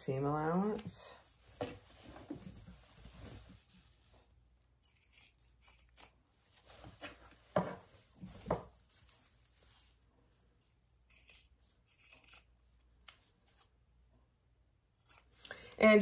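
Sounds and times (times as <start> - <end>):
fabric rustling: 0.5 - 4.7, 6.2 - 11.0
scissors snipping fabric: 4.8 - 6.2, 11.0 - 12.5.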